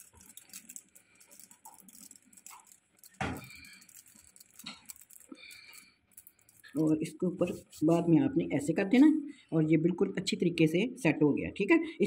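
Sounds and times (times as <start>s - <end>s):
aluminium foil crinkling: 0.0s - 9.2s.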